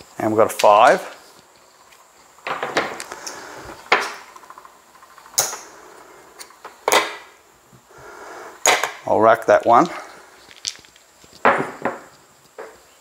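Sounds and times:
casino chips clicking: 0:10.4 - 0:11.4.

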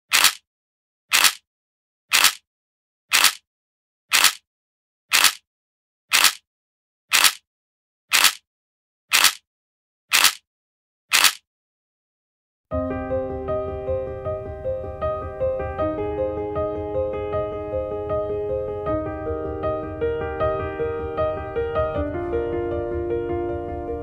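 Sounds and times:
camera shutter clicks: 0:00.1 - 0:00.4, 0:01.1 - 0:01.4, 0:02.1 - 0:02.4, 0:03.1 - 0:03.4, 0:04.1 - 0:04.4, 0:05.1 - 0:05.4, 0:06.1 - 0:06.4, 0:07.1 - 0:07.4, 0:08.1 - 0:08.4, 0:09.1 - 0:09.4, 0:10.1 - 0:10.4, 0:11.1 - 0:11.4.

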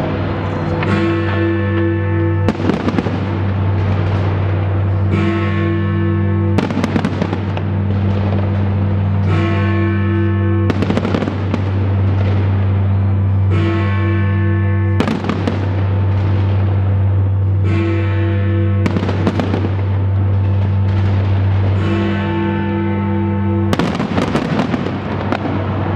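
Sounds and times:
fireworks bangs and crackling: 0:02.5 - 0:05.3, 0:06.6 - 0:09.7, 0:10.7 - 0:13.3, 0:15.0 - 0:17.5, 0:18.8 - 0:22.4, 0:23.7 - 0:25.9.

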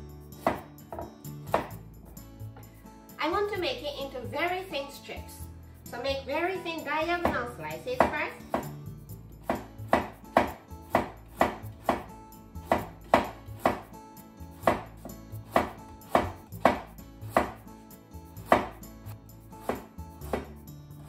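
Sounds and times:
knife chopping on wooden board: 0:00.4 - 0:01.8, 0:07.2 - 0:08.8, 0:09.4 - 0:13.9, 0:14.6 - 0:17.6, 0:18.4 - 0:18.8, 0:19.6 - 0:20.6.

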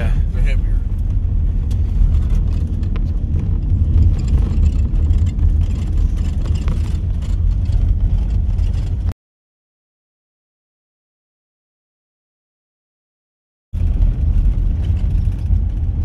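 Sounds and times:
engine and road rumble: 0:00.0 - 0:09.2, 0:13.8 - 0:16.0
rattles and knocks: 0:00.9 - 0:09.1, 0:13.8 - 0:16.0.

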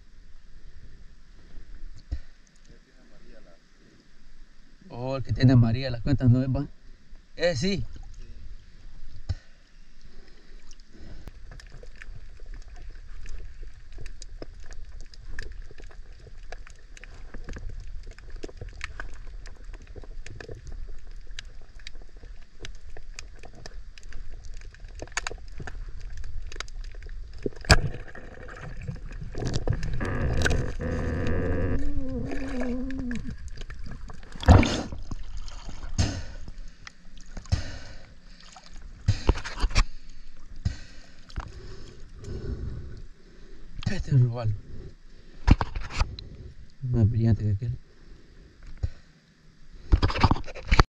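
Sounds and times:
water sloshing and gurgling: 0:04.0 - 0:46.8
underwater crackling clicks: 0:10.2 - 0:35.2
low underwater rumble: 0:10.8 - 0:38.0
sharp water splash: 0:34.3 - 0:36.4.

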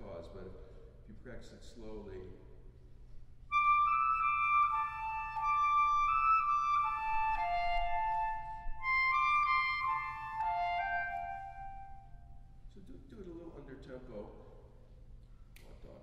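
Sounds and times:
solo clarinet: 0:03.5 - 0:12.5.

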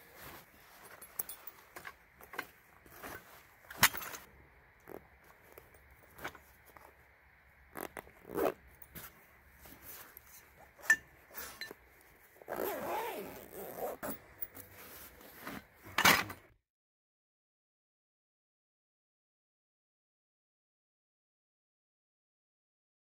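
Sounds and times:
fabric rustling: 0:00.0 - 0:04.3, 0:07.7 - 0:16.4
zipper pulls: 0:02.9 - 0:06.4, 0:07.7 - 0:09.1, 0:12.4 - 0:16.3.

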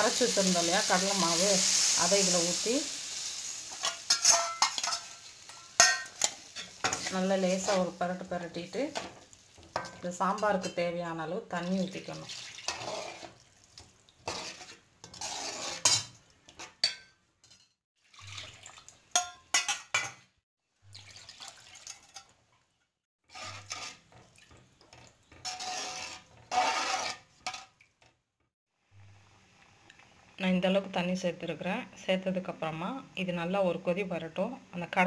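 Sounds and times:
steel ladle clinking against a pan: 0:03.8 - 0:07.1, 0:16.8 - 0:17.2, 0:19.2 - 0:20.2
water pouring: 0:11.7 - 0:14.7, 0:18.0 - 0:19.2, 0:20.9 - 0:22.4, 0:23.4 - 0:27.1
sloshing: 0:11.7 - 0:15.9, 0:18.0 - 0:19.1, 0:20.9 - 0:22.3.

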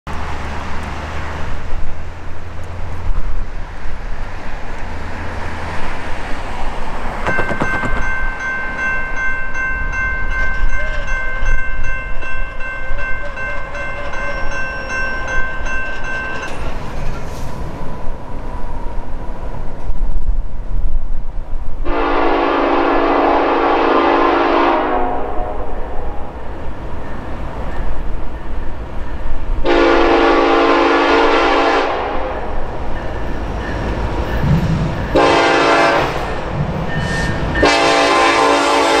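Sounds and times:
railroad crossing bell ringing: 0:07.2 - 0:17.3, 0:23.6 - 0:39.0.

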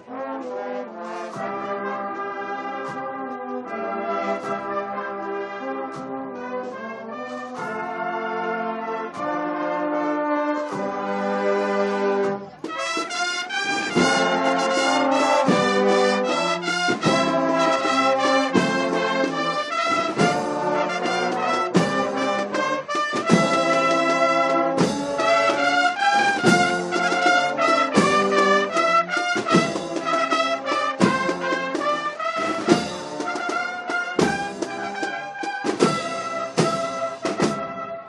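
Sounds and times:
brass band playing a march: 0:00.0 - 0:38.0
drum strokes: 0:12.2 - 0:37.9.

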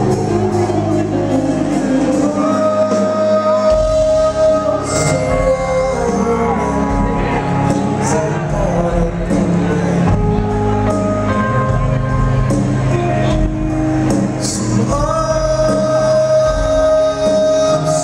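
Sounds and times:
man singing: 0:00.0 - 0:11.8, 0:14.2 - 0:18.0
rock band playing: 0:00.0 - 0:18.0.

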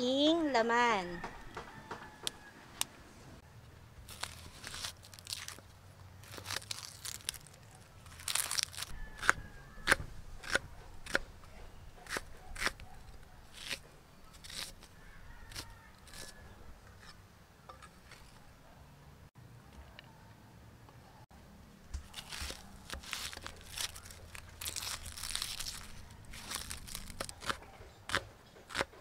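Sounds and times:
knife cutting onion on board: 0:09.2 - 0:11.3, 0:12.0 - 0:14.9, 0:26.5 - 0:29.0.

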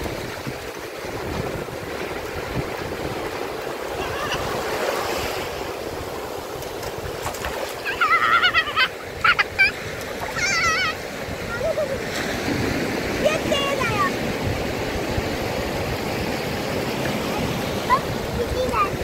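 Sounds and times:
waves washing up a shore: 0:00.0 - 0:19.0
wind buffeting microphone: 0:00.0 - 0:19.0
child squealing: 0:04.0 - 0:04.6, 0:07.8 - 0:12.0.

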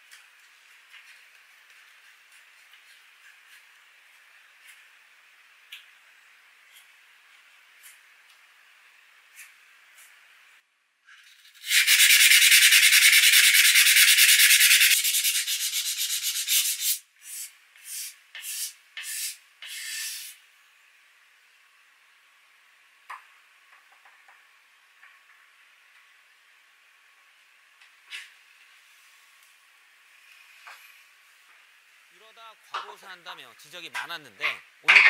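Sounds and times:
sandpaper scratching on wood: 0:11.6 - 0:20.4.

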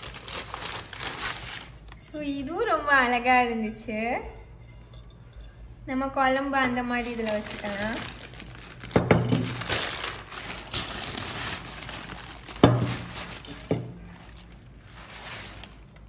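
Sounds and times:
paper and plastic bag crinkling: 0:00.0 - 0:02.1, 0:07.0 - 0:16.0.

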